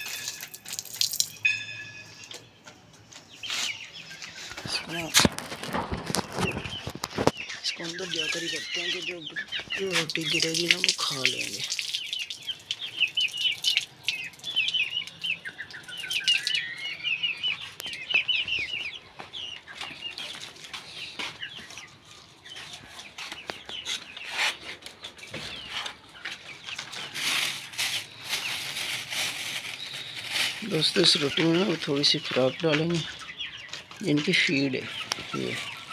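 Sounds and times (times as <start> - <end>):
chicks peeping: 1.4 - 35.9
plastic bag rustling: 4.4 - 8.9, 25.5 - 32.5.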